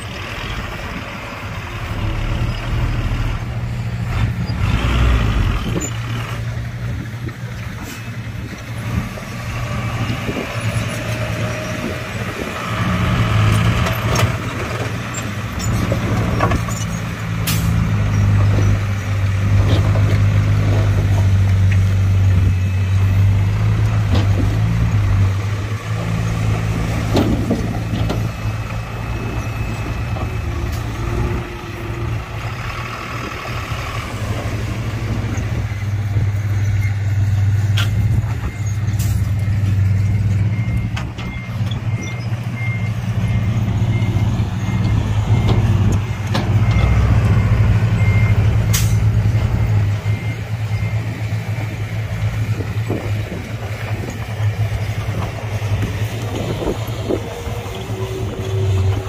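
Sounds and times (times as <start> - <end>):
diesel earthmoving machinery running: 0.0 - 59.0
reversing alarm beeping: 27.7 - 32.7, 38.4 - 51.8.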